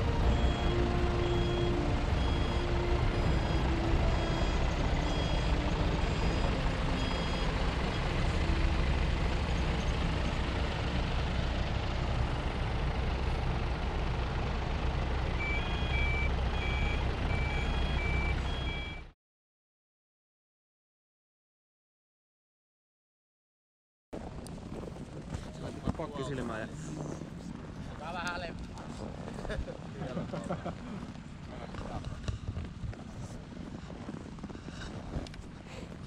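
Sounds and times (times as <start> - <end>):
reversing alarm beeping: 0.0 - 10.2, 15.4 - 19.1
lower-pitched reversing beeper: 0.0 - 10.4, 15.4 - 19.1
diesel engine running: 0.0 - 19.1, 24.2 - 36.0.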